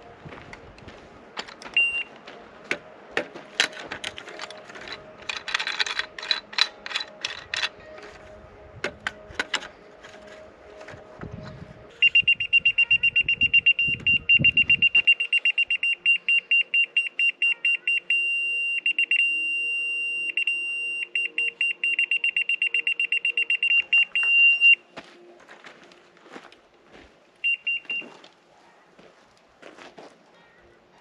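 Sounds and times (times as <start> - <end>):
rapid high beeps: 12.0 - 24.8, 27.4 - 28.1.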